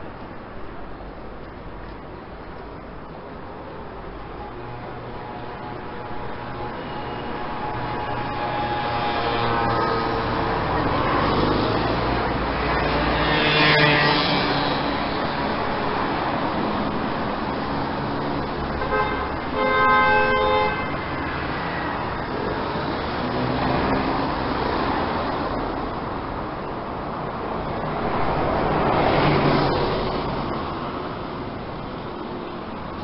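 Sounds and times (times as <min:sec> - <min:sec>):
road traffic noise: 0:00.0 - 0:33.0
car horn: 0:18.8 - 0:21.5.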